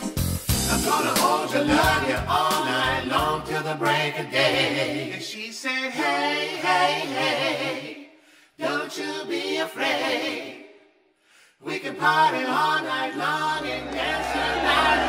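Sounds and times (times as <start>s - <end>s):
blues rock song with vocal harmonies: 0.5s - 7.7s.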